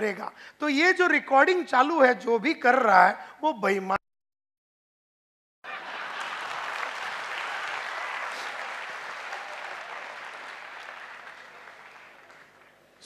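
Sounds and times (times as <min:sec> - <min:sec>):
audience applauding: 0:05.6 - 0:13.0.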